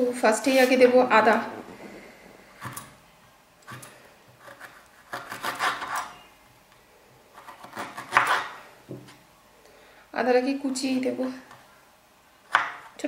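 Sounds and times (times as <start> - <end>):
knife cutting on wooden board: 3.7 - 6.2, 7.4 - 9.2.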